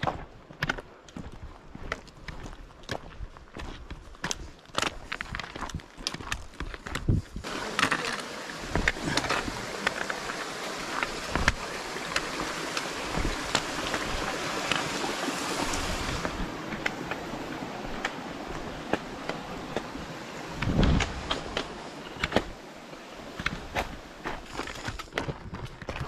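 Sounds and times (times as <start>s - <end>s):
footsteps crunching on stony trail: 0.0s - 26.0s
mountain stream rushing: 7.4s - 26.0s.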